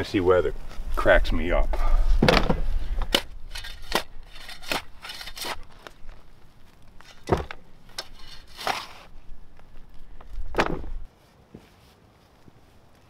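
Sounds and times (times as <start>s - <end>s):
shovel scraping into dry soil: 2.8s - 6.3s, 7.9s - 9.2s.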